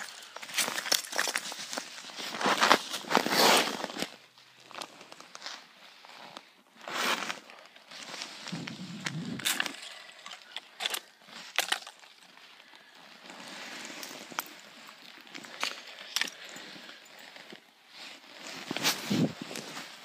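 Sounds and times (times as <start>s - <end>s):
ice cracking: 0.0s - 4.1s, 8.0s - 17.3s
snow and slush crunching underfoot: 0.0s - 20.0s.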